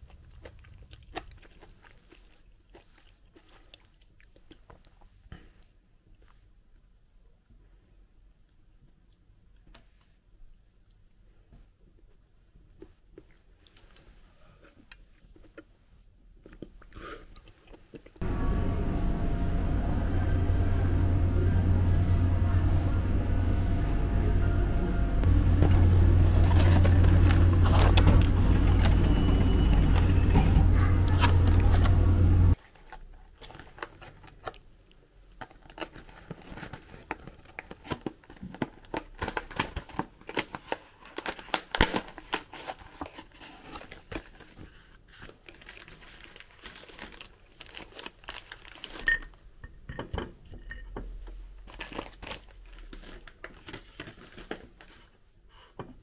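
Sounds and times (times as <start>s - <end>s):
loud low hum: 18.2s - 32.6s
plastic pack crinkling: 25.3s - 49.2s, 51.6s - 55.1s.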